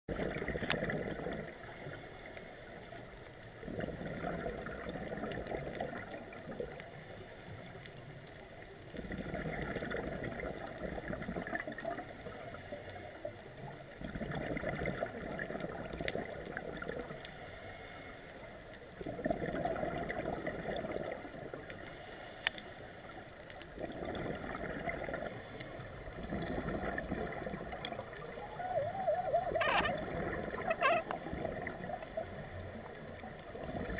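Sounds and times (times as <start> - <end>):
bubbly exhaled air underwater: 0.1 - 1.9, 3.5 - 7.0, 8.8 - 12.5, 13.6 - 17.4, 18.9 - 21.8, 23.6 - 33.9.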